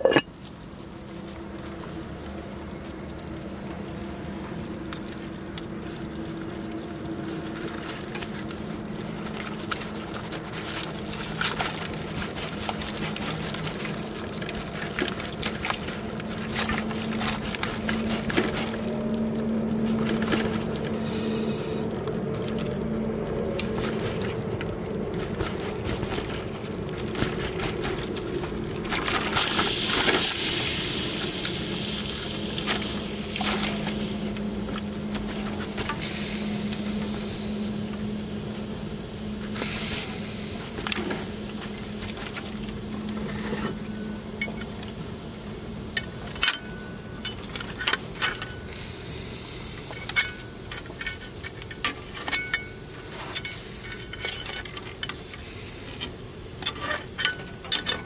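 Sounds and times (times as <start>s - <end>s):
utensils clinking against cookware: 0.0s - 0.3s, 49.9s - 55.2s, 56.6s - 58.0s.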